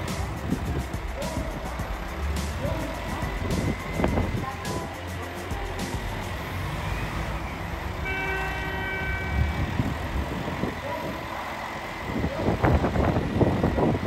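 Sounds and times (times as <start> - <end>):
diesel train engines rumbling: 0.0 - 14.0
train horn tone: 7.1 - 10.0.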